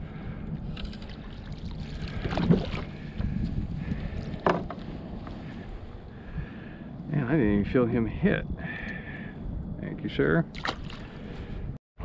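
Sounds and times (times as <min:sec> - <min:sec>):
wind on microphone: 0:00.0 - 0:11.8
water lapping against hull: 0:00.8 - 0:05.6.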